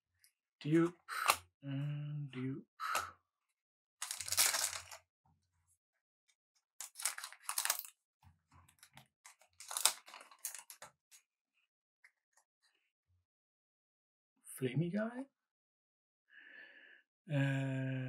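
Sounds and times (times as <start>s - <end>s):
foil wrapper tearing and crinkling: 4.0s - 5.0s, 6.8s - 7.9s, 9.3s - 10.8s.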